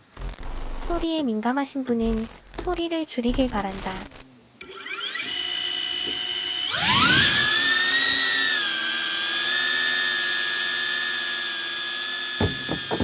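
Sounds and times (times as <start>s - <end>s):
drone propellers whining: 4.6s - 10.1s.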